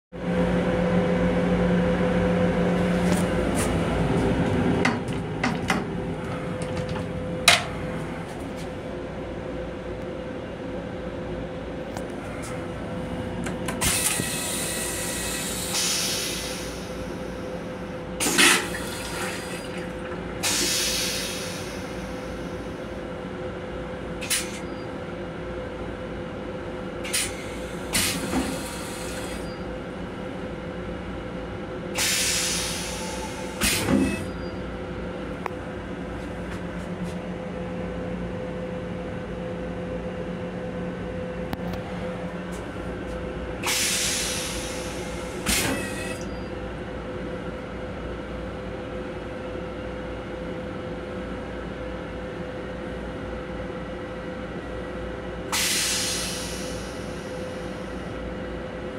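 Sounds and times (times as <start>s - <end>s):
train hum: 0.1s - 58.9s
toilet flush burst: 18.2s - 19.7s.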